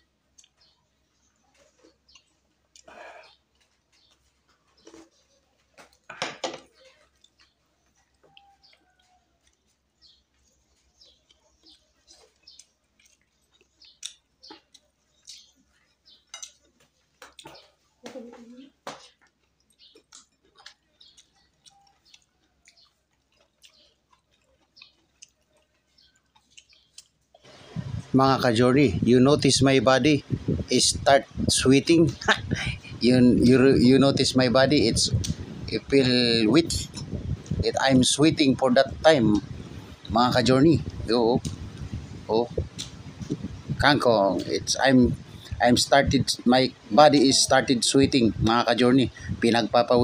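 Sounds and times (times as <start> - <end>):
wet chewing and lip-smacking: 6.7 - 17.9, 18.7 - 28.1.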